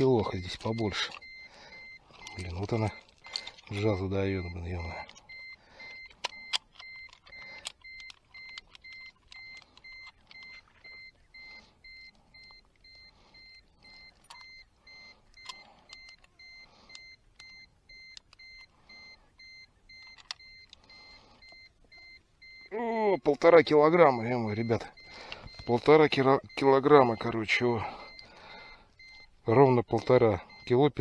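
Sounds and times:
handling clicks and knocks: 0:02.1 - 0:11.4.

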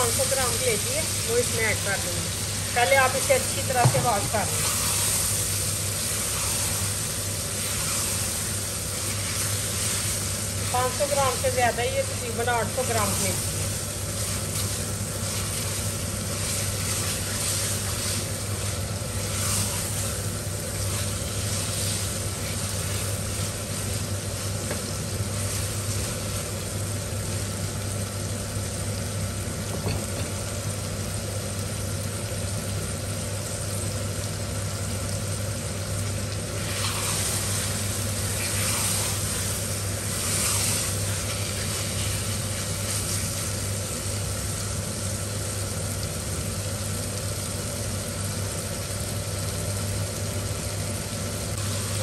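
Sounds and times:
meat sizzling in a pan: 0:00.0 - 0:52.0
spatula stirring: 0:03.8 - 0:26.3, 0:36.6 - 0:43.4.

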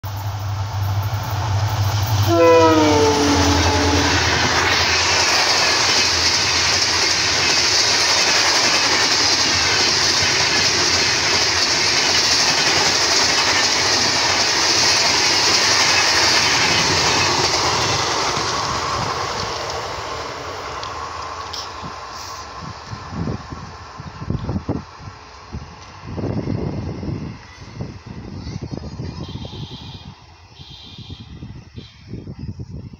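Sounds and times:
diesel locomotive engine hum: 0:00.0 - 0:32.9
train wheels on rails: 0:00.0 - 0:32.9
train horn: 0:02.2 - 0:04.7, 0:29.2 - 0:32.1.

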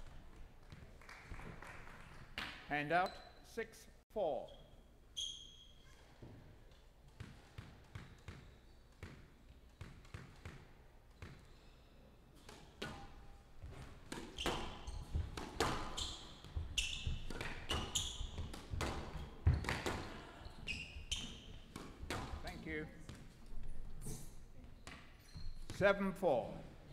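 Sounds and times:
shoe squeaks on court: 0:03.0 - 0:03.5, 0:04.4 - 0:06.3, 0:08.0 - 0:10.3, 0:11.1 - 0:11.9, 0:14.1 - 0:21.7, 0:24.0 - 0:25.8
ball hitting walls and floor: 0:06.2 - 0:11.5, 0:12.4 - 0:25.9
racquets smacking squash ball: 0:06.2 - 0:11.5, 0:12.4 - 0:23.5.

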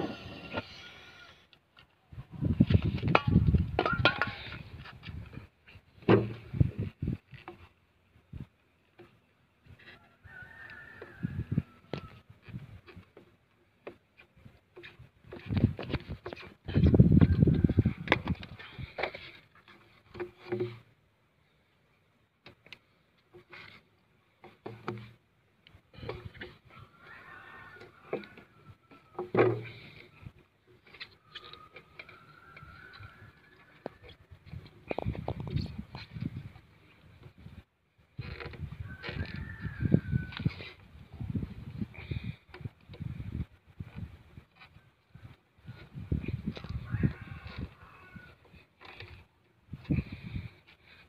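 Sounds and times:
metal tool scraping plastic pipe: 0:11.9 - 0:20.9, 0:22.5 - 0:25.2, 0:25.9 - 0:41.1, 0:43.8 - 0:51.0.

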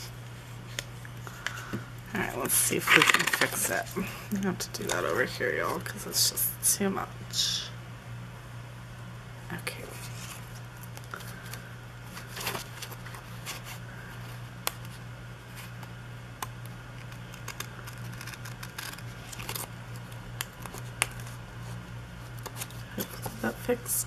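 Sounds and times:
steady low hum: 0:00.0 - 0:24.0
paper rustling: 0:02.4 - 0:03.9, 0:10.0 - 0:14.2, 0:17.0 - 0:23.4.

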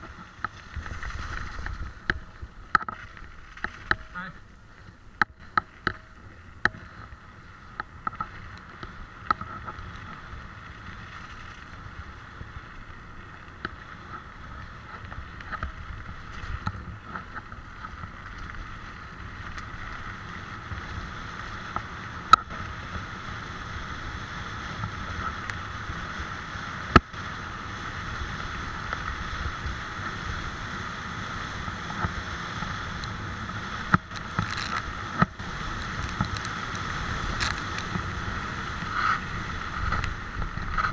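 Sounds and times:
tyres rolling over gravel: 0:00.0 - 0:40.9
wind on microphone: 0:33.8 - 0:40.9.

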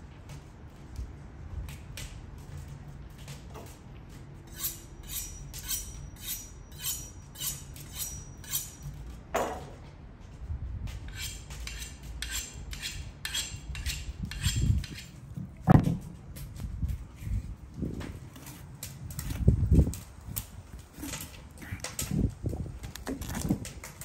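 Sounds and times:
utensil scraping: 0:04.5 - 0:09.1, 0:11.0 - 0:15.6.

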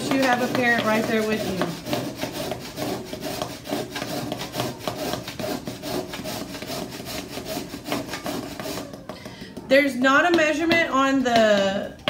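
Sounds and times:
chalk scraped on metal grater: 0:00.0 - 0:09.0.

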